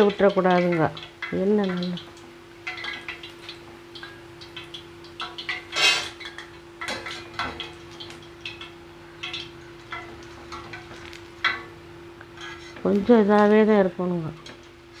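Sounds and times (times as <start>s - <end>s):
metal skimmer scraping steel pan: 5.2s - 7.7s, 12.4s - 12.9s.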